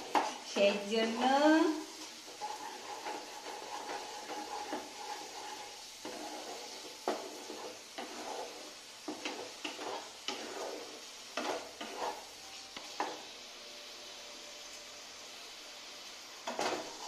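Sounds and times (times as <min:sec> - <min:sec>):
wooden spatula scraping a pan: 0:00.0 - 0:13.4, 0:16.4 - 0:17.0
masala sizzling in oil: 0:00.0 - 0:17.0.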